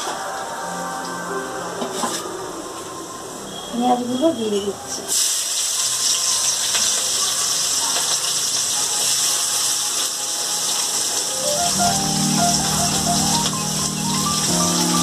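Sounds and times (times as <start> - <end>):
onions sizzling in hot oil: 5.0 - 15.0.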